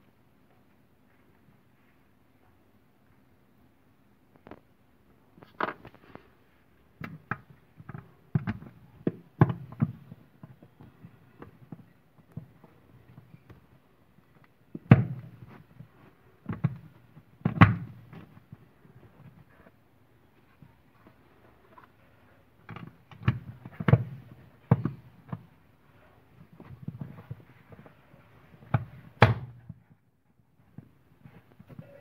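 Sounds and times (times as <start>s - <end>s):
knocks and thumps on cardboard: 7.0s - 13.6s, 14.7s - 18.6s, 22.7s - 25.6s, 28.5s - 29.9s.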